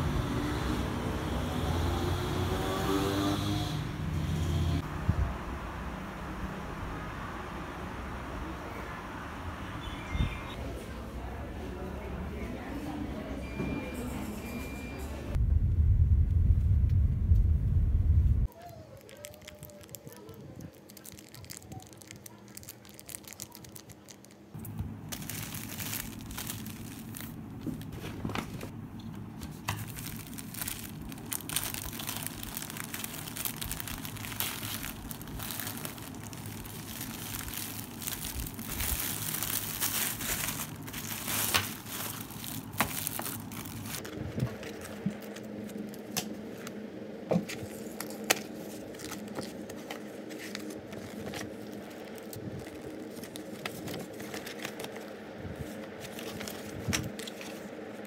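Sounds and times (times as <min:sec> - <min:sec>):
plastic mailer bag crinkling: 0:18.5 - 0:28.7, 0:29.4 - 0:46.2, 0:47.7 - 0:58.0
paper and packaging rustling: 0:18.5 - 0:46.7, 0:47.3 - 0:58.0.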